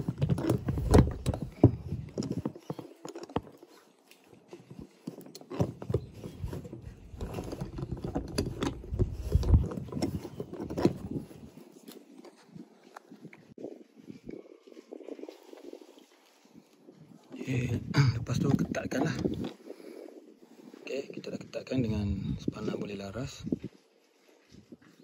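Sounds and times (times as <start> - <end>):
plastic pipe connector scraping: 0.0 - 13.0, 18.3 - 19.6
low rumbling handling noise: 0.0 - 13.6, 17.5 - 19.8.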